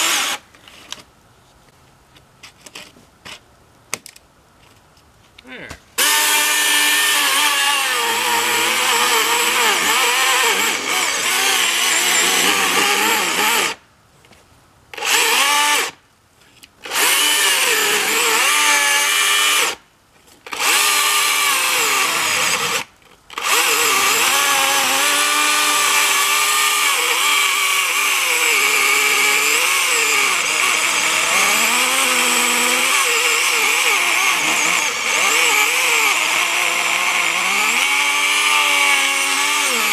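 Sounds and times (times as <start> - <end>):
chainsaw cutting wood: 0.0 - 0.4, 6.0 - 13.8, 15.0 - 16.0, 16.8 - 19.8, 20.5 - 39.9.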